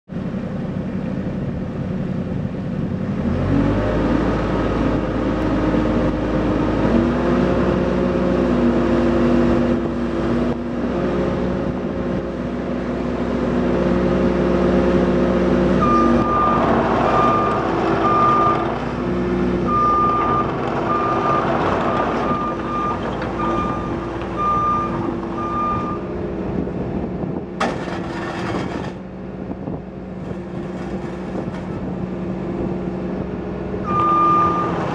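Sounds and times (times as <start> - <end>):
excavator diesel engine running: 0.1 - 34.9
travel alarm beeping: 22.3 - 26.0, 33.9 - 34.8.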